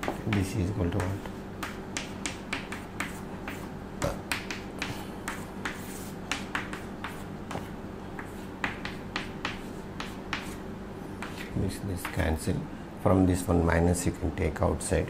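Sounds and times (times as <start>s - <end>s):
chalk tapping on chalkboard: 0.0s - 10.6s, 11.2s - 12.3s.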